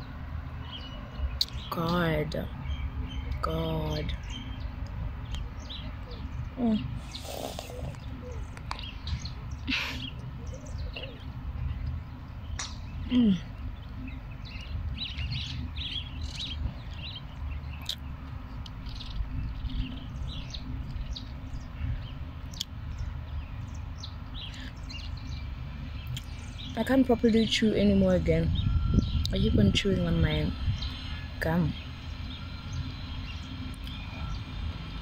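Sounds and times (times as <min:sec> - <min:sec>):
birds chirping: 0:00.0 - 0:35.0
mouth clicks and smacks: 0:17.8 - 0:18.8.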